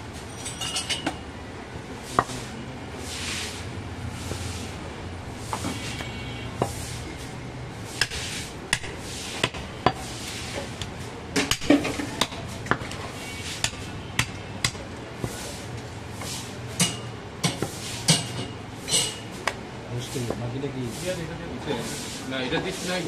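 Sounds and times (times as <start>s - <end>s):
knife scraping: 5.4s - 7.3s
knife chopping on wooden block: 8.0s - 10.1s.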